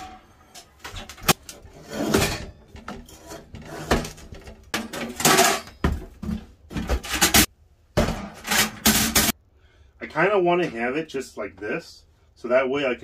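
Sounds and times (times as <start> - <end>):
metal stove clanking and scraping: 0.0 - 5.9.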